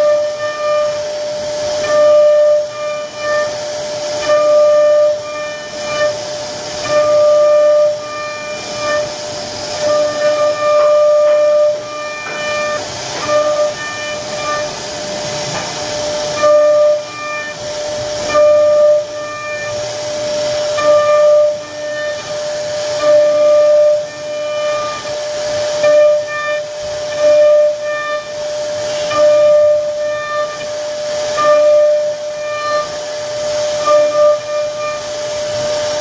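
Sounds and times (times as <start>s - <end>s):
bit cutting wood hiss: 0.0s - 36.0s
router spindle high-pitched whine: 0.0s - 36.0s.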